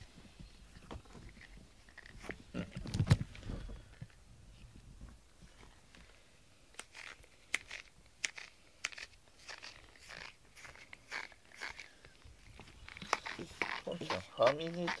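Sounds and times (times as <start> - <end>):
brush handling noise: 6.8 - 15.0.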